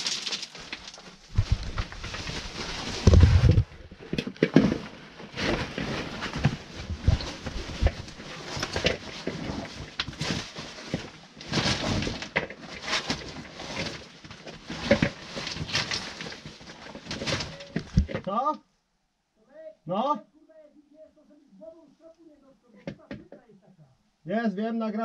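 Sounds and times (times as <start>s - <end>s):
clothing and boots scraping rock: 0.0s - 3.7s, 4.6s - 18.1s.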